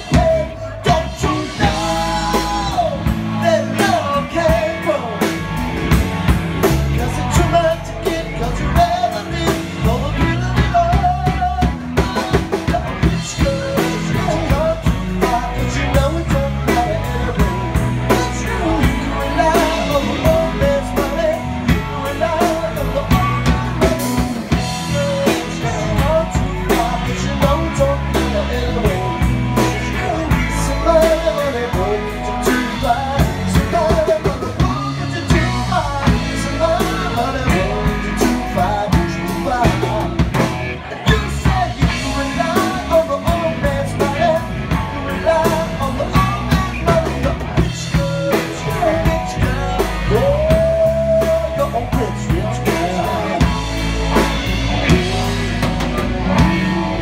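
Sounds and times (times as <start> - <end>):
drum kit beat: 0.0 - 57.0
live pop-rock band playing: 0.0 - 57.0
person singing lead vocals: 0.0 - 57.0.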